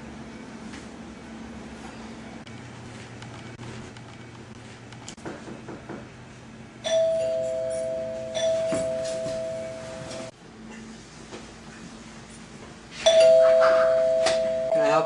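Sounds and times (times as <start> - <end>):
two-tone doorbell chime: 6.8 - 10.3, 13.1 - 15.0.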